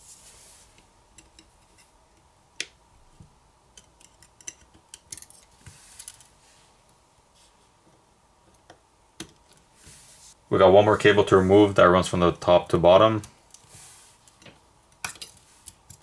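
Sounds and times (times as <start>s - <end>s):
metal tool clicking and tapping: 3.8s - 5.4s
faint cable rustle: 5.1s - 8.0s.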